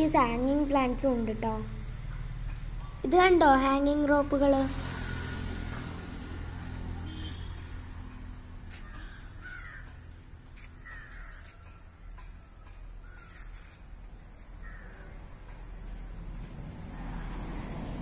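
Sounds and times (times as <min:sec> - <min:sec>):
bird calling: 0:08.8 - 0:15.2.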